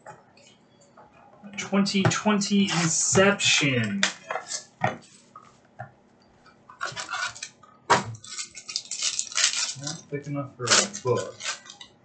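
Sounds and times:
foil pack crinkling: 0:08.2 - 0:10.0, 0:10.6 - 0:11.9.

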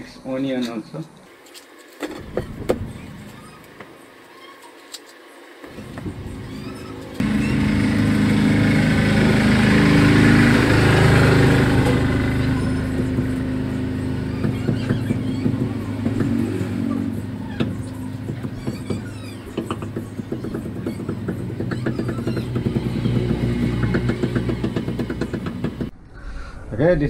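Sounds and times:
motor engine running: 0:05.6 - 0:25.9.

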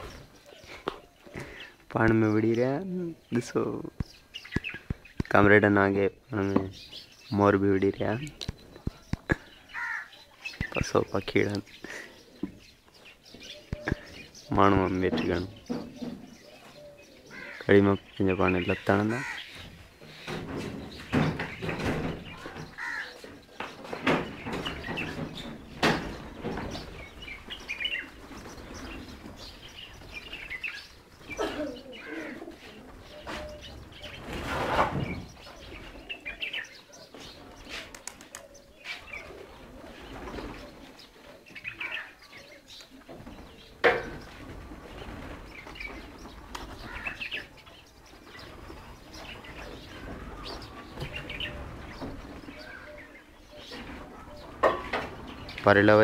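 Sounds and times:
pigeons cooing: 0:00.0 - 0:05.2, 0:08.0 - 0:56.0
small birds chirping: 0:00.0 - 0:56.0
pigeons flapping wings: 0:37.5 - 0:38.5, 0:44.2 - 0:47.1.

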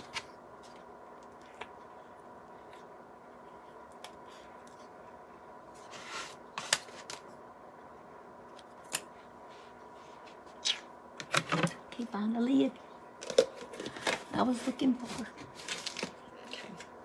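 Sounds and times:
faint steady hum: 0:00.0 - 0:17.0.

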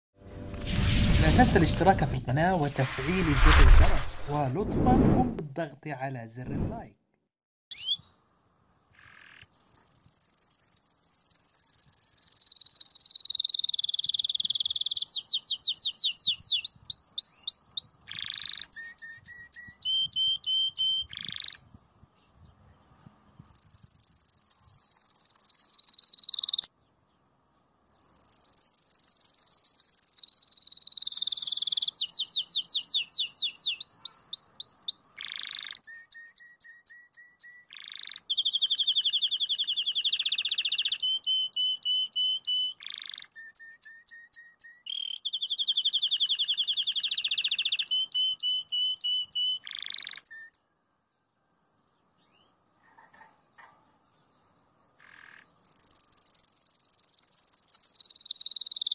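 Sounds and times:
canary singing trills and chirps: 0:07.7 - 0:08.2, 0:09.0 - 0:26.9, 0:27.9 - 0:51.0, 0:52.0 - 0:58.9.

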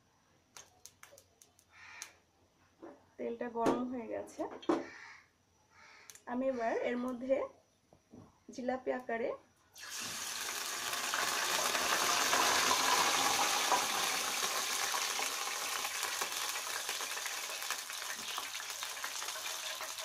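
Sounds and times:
oil sizzling in a frying pan: 0:09.8 - 0:20.0.

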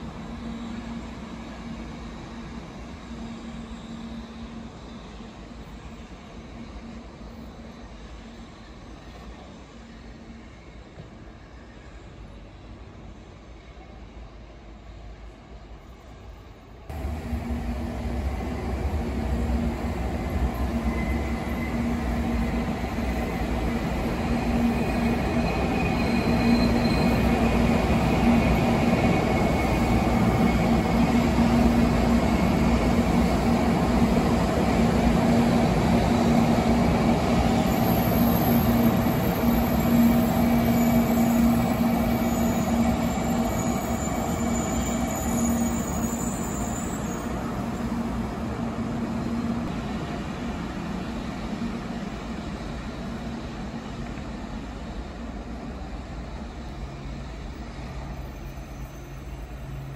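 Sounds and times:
train rushing with low hum: 0:00.0 - 0:59.9
thin high squeal: 0:37.8 - 0:47.6.

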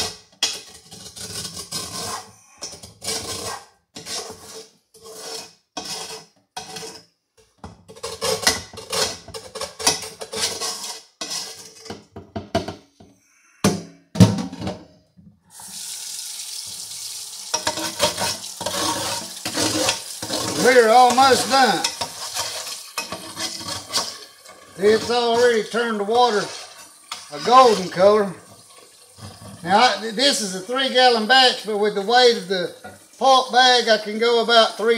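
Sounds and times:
kitchen faucet running: 0:15.4 - 0:34.9.

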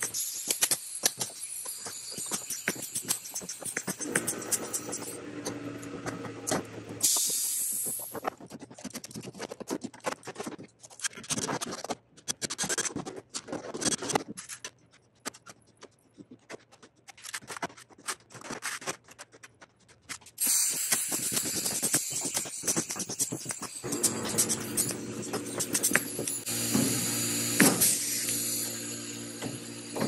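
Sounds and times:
metallic clicks and scrapes: 0:07.8 - 0:26.5
pneumatic rivet gun hissing: 0:20.4 - 0:22.4, 0:23.8 - 0:30.0.

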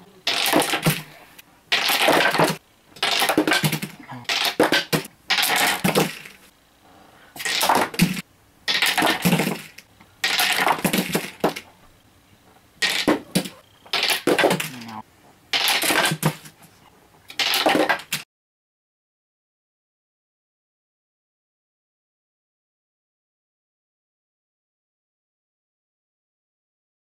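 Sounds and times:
ball rolling on plywood lane: 0:07.4 - 0:11.8.

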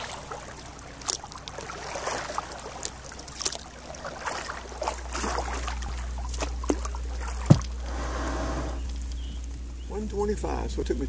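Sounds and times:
paddle splashing in water: 0:00.0 - 0:08.8
low rumble: 0:00.0 - 0:11.0.

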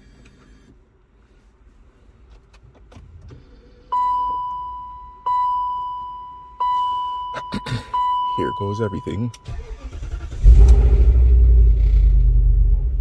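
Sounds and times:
dashboard warning chime: 0:03.9 - 0:09.5.

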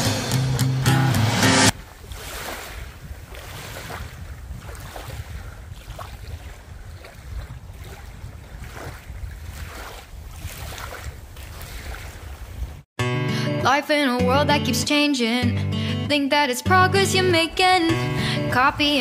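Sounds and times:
small waves lapping on shore: 0:01.7 - 0:12.9
wind rumble on microphone: 0:01.7 - 0:12.9.

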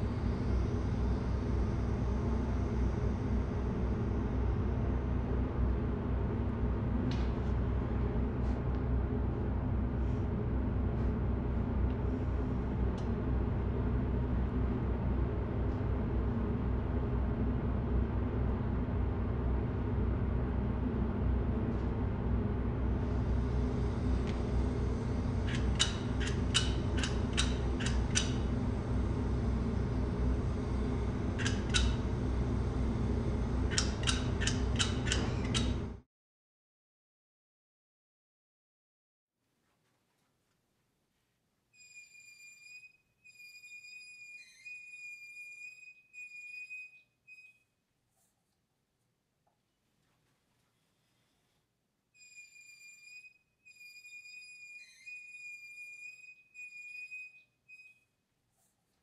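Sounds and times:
low rumbling drone: 0:00.0 - 0:36.0.

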